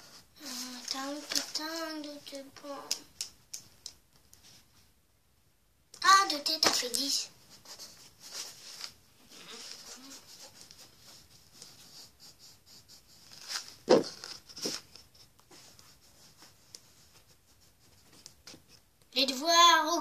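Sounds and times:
pen scratching on paper: 9.6 - 14.7.

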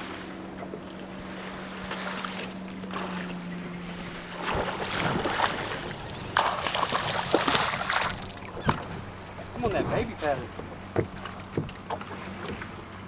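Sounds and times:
steady low hum: 0.0 - 13.0
fish splashing at water surface: 4.0 - 8.9.

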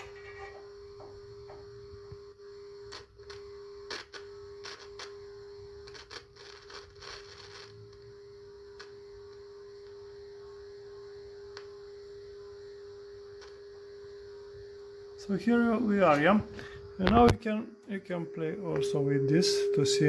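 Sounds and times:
radio crackles and clicks: 2.8 - 5.2, 5.8 - 8.0, 15.5 - 19.8
steady test tone: 12.4 - 20.0.

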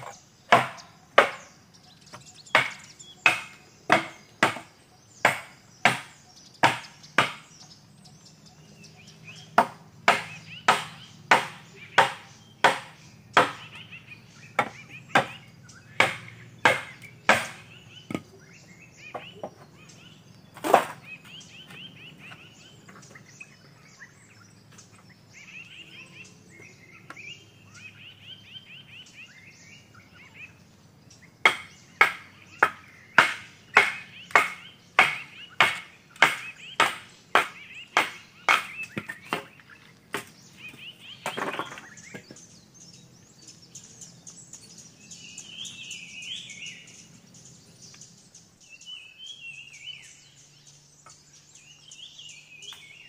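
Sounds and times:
machete chopping bamboo: 0.0 - 4.7, 5.3 - 7.5, 9.6 - 13.8, 14.6 - 18.4, 20.6 - 21.1, 31.4 - 40.3
birds chirping: 0.0 - 53.0.

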